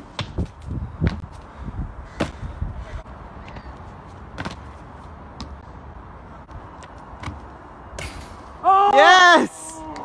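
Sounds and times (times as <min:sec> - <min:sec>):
wind rumble on microphone: 0:00.2 - 0:03.1.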